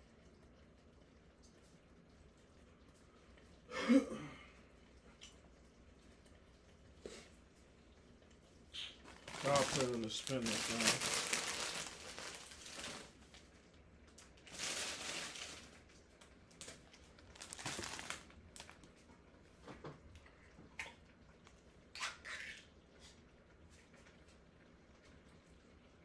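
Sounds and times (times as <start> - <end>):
plastic bag rustling: 9.0 - 13.4, 14.4 - 15.9, 16.6 - 18.9.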